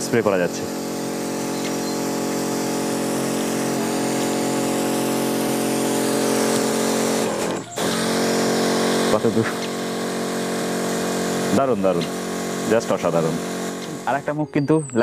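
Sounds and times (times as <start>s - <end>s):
electric pump motors whining: 0.0s - 15.0s.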